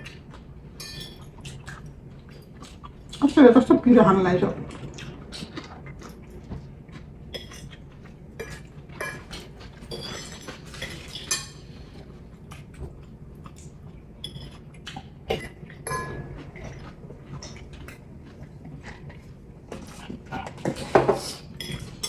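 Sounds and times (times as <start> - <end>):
forks clinking on plates: 0.8 - 1.8, 8.4 - 11.6.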